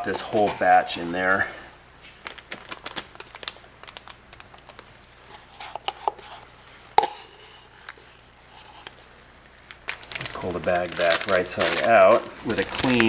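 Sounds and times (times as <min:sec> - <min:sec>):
stir stick scraping and tapping cup: 0:05.3 - 0:09.1.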